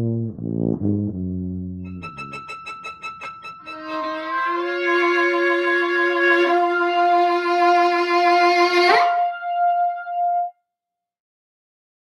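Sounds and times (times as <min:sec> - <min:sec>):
second instrument: 0:00.1 - 0:10.5
violin playing held notes: 0:01.9 - 0:10.5.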